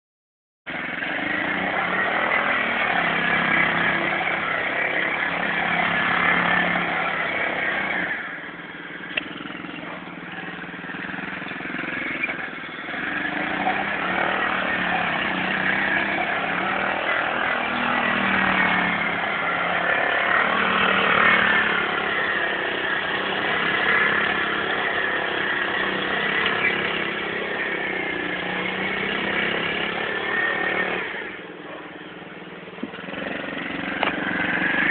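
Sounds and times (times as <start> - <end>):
atv engine revving: 0.7 - 34.9.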